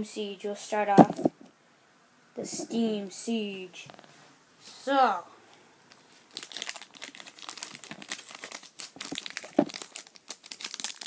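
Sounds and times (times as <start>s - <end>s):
foil wrapper crinkling: 5.9s - 11.0s.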